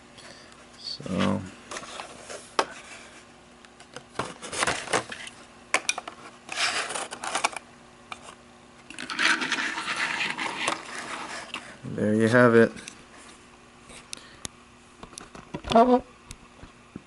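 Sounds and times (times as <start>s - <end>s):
rubbing and scraping: 9.0s - 11.8s.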